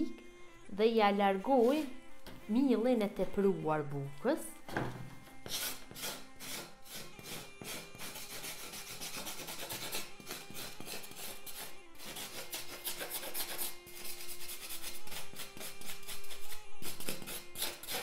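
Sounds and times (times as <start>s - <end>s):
knife scraping bread crust: 5.4s - 18.0s.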